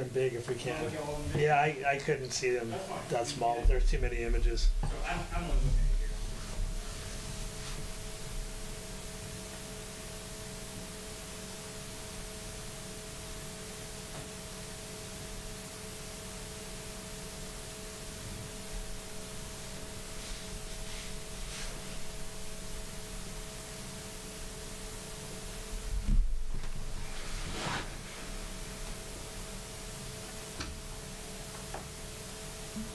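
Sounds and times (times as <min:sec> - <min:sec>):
constant hiss: 0:00.0 - 0:32.9
electrical hum: 0:00.0 - 0:32.9.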